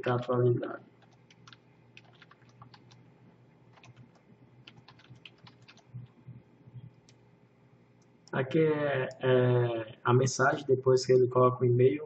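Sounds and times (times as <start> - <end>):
typing on computer keyboard: 1.0 - 3.0, 3.7 - 5.9.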